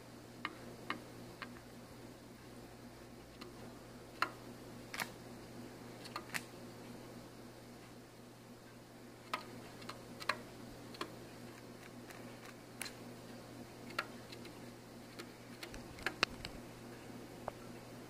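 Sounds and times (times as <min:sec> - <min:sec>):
pigeon pecking plastic bag: 0:09.2 - 0:13.0.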